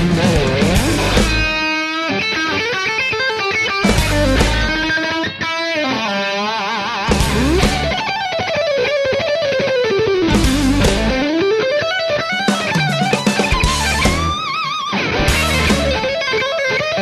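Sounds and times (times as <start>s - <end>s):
drums and bass: 0.0s - 1.7s, 3.8s - 5.0s, 7.1s - 8.2s, 10.2s - 11.5s, 12.2s - 16.3s
electric guitar melody: 0.0s - 17.0s.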